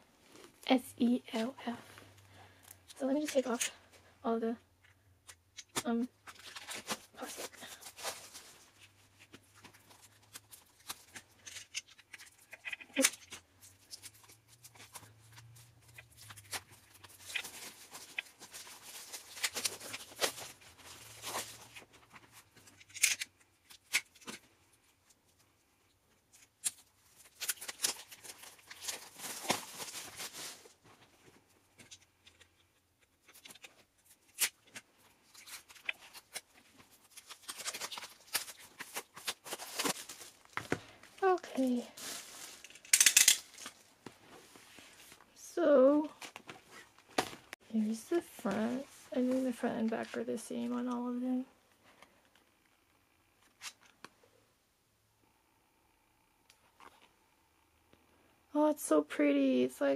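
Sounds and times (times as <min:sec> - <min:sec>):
cellophane crinkling and tearing: 0:05.6 - 0:25.2, 0:26.3 - 0:45.2.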